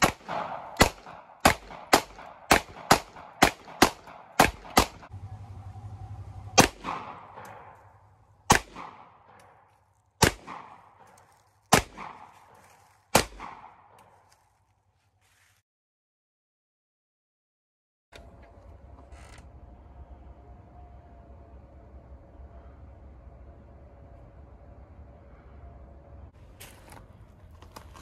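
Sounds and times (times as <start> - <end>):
handgun shots echoing: 0.0 - 5.1, 6.6 - 7.9, 8.5 - 9.6, 10.2 - 14.1.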